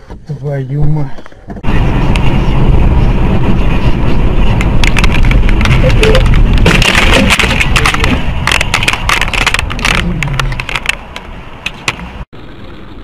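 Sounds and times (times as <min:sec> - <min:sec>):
engine and road noise hum: 0:00.0 - 0:13.0
car engine: 0:01.4 - 0:13.0
car collision clattering: 0:04.6 - 0:12.1.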